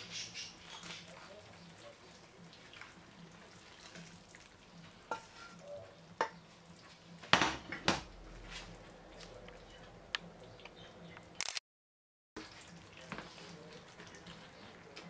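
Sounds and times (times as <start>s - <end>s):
sauce hissing and bubbling: 0.0s - 7.2s
sharp clicks: 11.2s - 11.6s.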